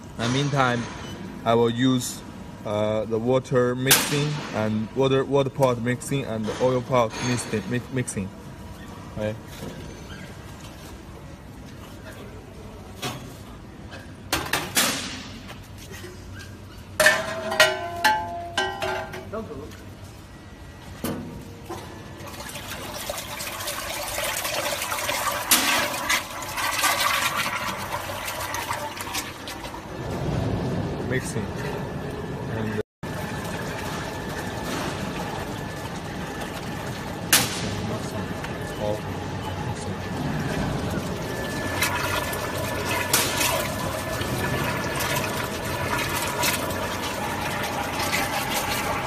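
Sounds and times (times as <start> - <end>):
mixer stirrers humming: 15.6 - 49.0.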